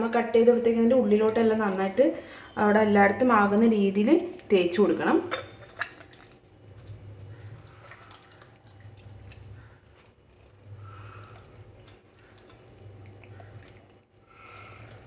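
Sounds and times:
hands squishing wet marinade: 0:03.4 - 0:15.0.

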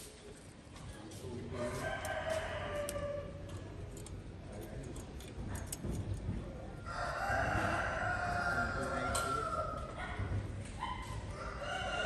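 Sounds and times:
rooster crowing: 0:01.6 - 0:03.4, 0:06.8 - 0:09.9, 0:11.3 - 0:12.0.

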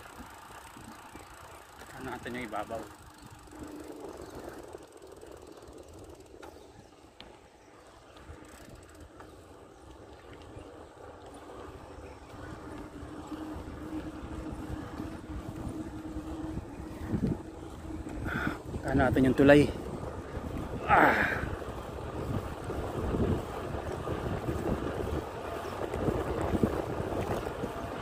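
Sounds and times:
road and wind rumble on microphone: 0:00.0 - 0:28.0
steady hum: 0:10.8 - 0:28.0.

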